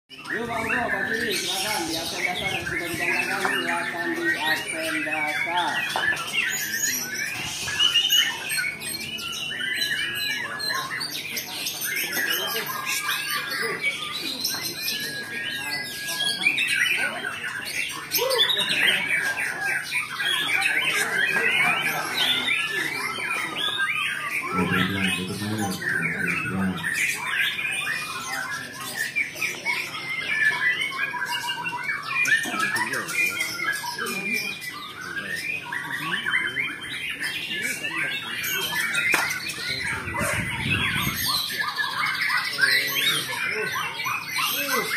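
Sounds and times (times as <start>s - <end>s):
chorus of whistling songbirds: 0.1s - 44.9s
many birds singing: 0.1s - 44.9s
man's voice: 24.5s - 26.9s.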